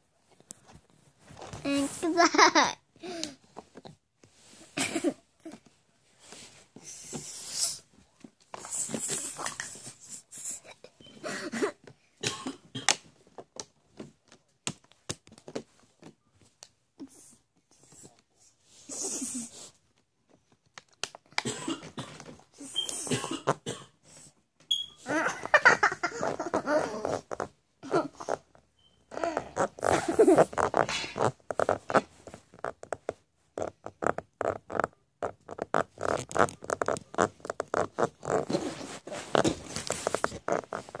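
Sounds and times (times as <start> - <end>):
plastic crinkling and clicking: 20.3 - 21.5
baby vocal noises: 29.1 - 30.5
baby gnawing on plastic cap: 33.6 - 38.6.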